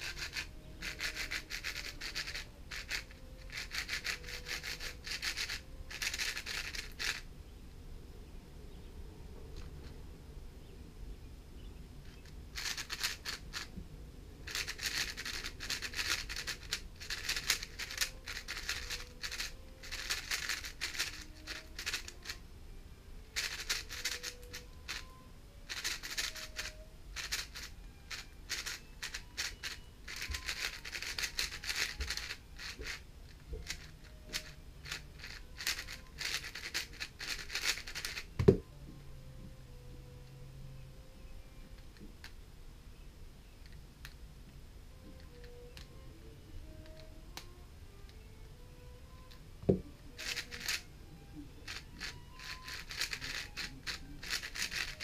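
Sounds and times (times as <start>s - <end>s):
puzzle cube layers clicking: 0.0s - 7.2s, 12.2s - 13.7s, 14.5s - 22.4s, 23.4s - 38.6s, 50.1s - 50.8s, 51.6s - 55.0s.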